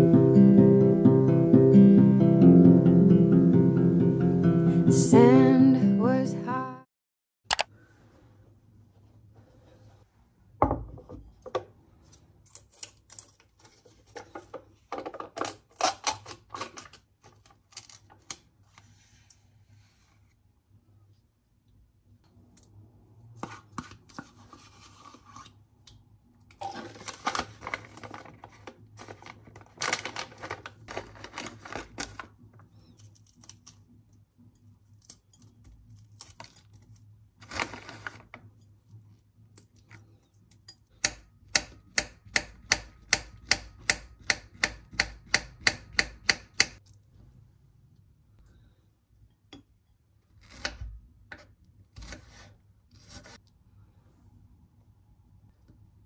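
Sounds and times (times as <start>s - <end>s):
snack packet crinkling: 26.7s - 32.4s.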